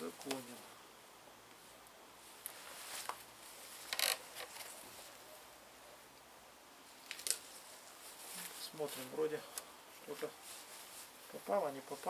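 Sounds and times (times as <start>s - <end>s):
scraping rustling handling noises: 1.6s - 5.2s, 6.9s - 12.0s.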